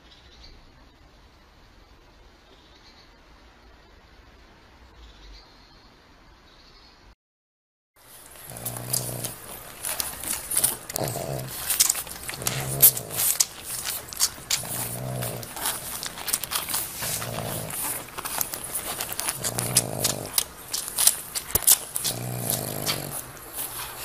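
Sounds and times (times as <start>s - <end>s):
dog grunting: 8.0s - 24.0s
puppies suckling: 8.0s - 24.0s.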